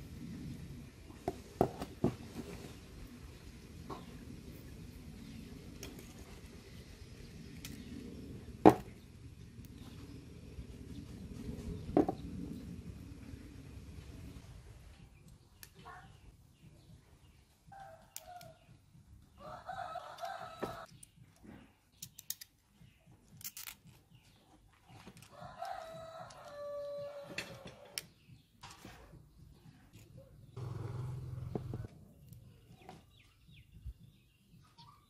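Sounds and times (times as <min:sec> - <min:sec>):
rooster crowing: 0:19.4 - 0:20.9, 0:25.3 - 0:27.9
metal parts clicking and knocking: 0:20.9 - 0:24.0.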